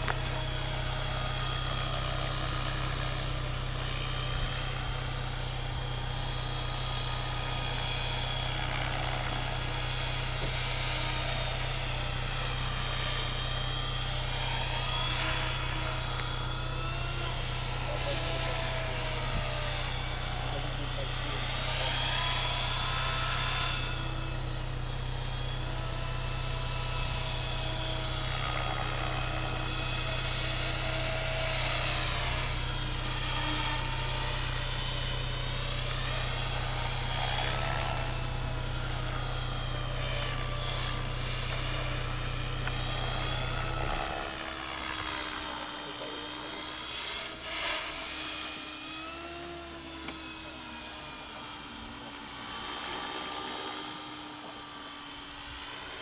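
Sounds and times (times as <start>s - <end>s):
model helicopter whine: 0.0s - 56.0s.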